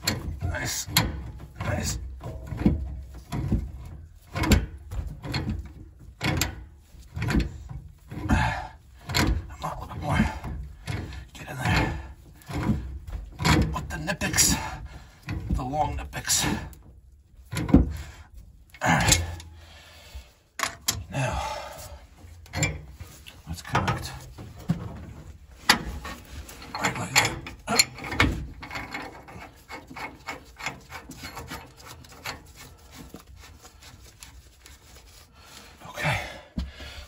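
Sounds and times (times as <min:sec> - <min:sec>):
wrench clinking on steel pipe fittings: 0:26.6 - 0:32.3.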